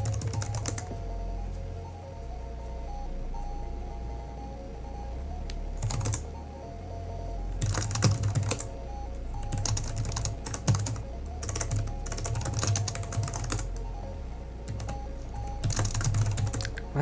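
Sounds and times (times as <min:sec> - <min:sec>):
computer keyboard typing: 0:00.0 - 0:00.9, 0:05.8 - 0:06.3, 0:07.6 - 0:08.7, 0:09.4 - 0:13.9, 0:14.6 - 0:17.0
background music: 0:00.0 - 0:17.0.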